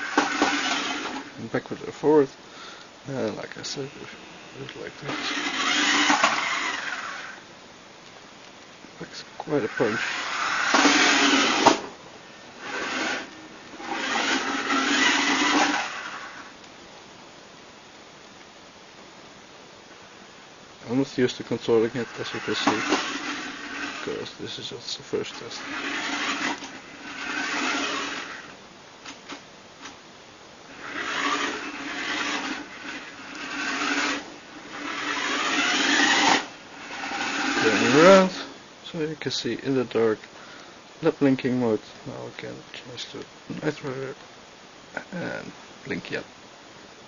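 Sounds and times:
toy car motor whirring: 0.0s - 1.3s, 3.7s - 7.4s, 9.6s - 11.9s, 12.6s - 16.5s, 21.8s - 24.6s, 25.2s - 28.6s, 30.7s - 38.5s
wheels rolling on wooden floor: 0.0s - 1.3s, 4.7s - 7.4s, 9.7s - 11.9s, 12.6s - 16.5s, 22.0s - 24.3s, 25.4s - 28.5s, 30.7s - 38.5s
steady low hum: 0.0s - 47.0s.

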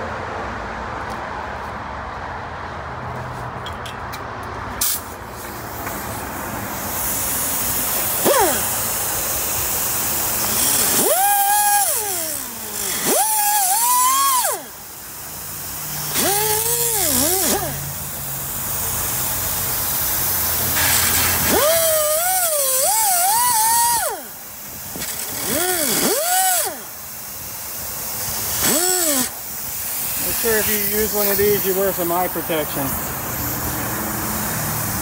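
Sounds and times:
air hiss: 4.8s - 35.0s
pneumatic cut-off tool whining: 4.8s - 35.0s.

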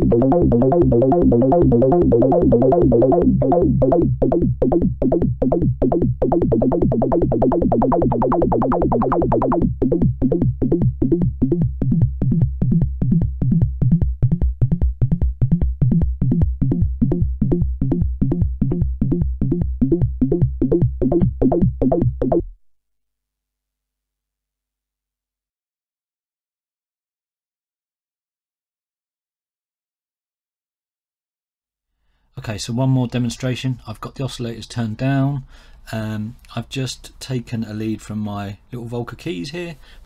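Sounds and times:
synthesizer bass line: 0.0s - 22.6s.

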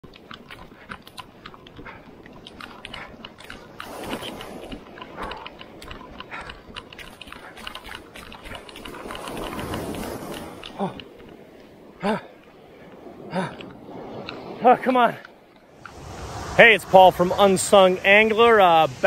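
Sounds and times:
dense crackling clicks: 0.0s - 11.7s
small waves washing on sand: 0.1s - 19.0s.

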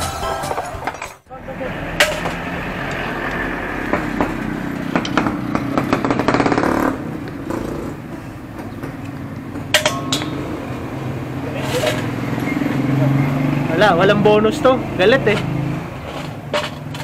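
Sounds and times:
ringing metal clinks: 9.8s - 10.7s.

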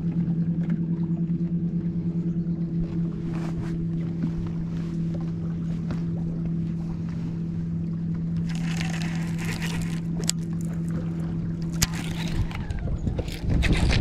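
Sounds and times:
trolling motor hum: 0.0s - 14.0s
fishing reel cranking: 8.4s - 10.5s, 11.7s - 14.0s.

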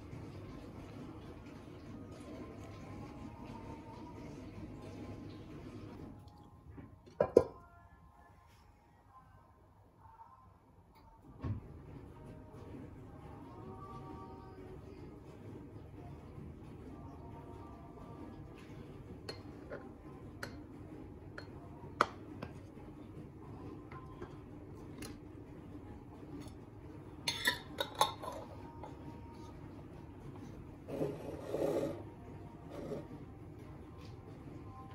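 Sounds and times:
metal lid clinking on jar: 27.3s - 28.5s
jar scraping on countertop: 30.9s - 32.0s, 32.7s - 33.1s.

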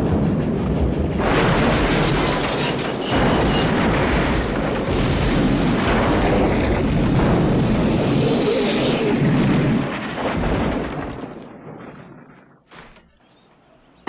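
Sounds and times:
dramatic soundtrack music: 0.0s - 3.6s
loud rumbling booms: 0.0s - 12.6s.

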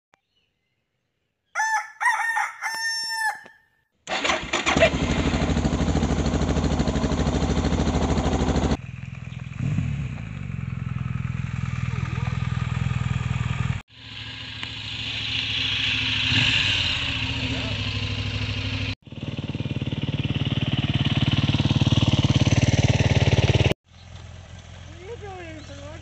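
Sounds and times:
rooster crowing: 1.6s - 3.7s
motorcycle engine idling: 4.8s - 26.0s.

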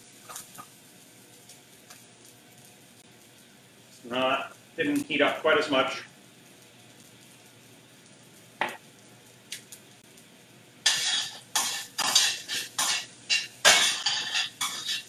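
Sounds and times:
metal utensil scraping skillet: 10.9s - 15.0s.

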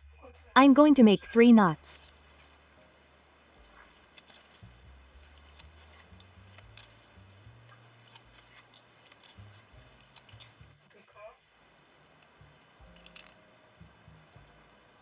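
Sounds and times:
thread ticks and rustles: 3.6s - 10.8s, 12.1s - 13.4s.

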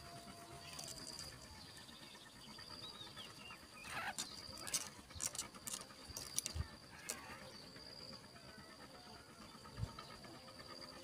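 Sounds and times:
insect trill: 0.0s - 11.0s
nestlings squeaking: 3.8s - 7.3s.

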